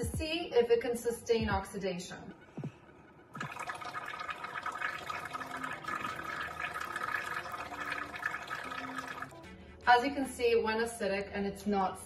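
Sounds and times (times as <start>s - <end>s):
bubbling through straws in water: 3.4s - 9.4s.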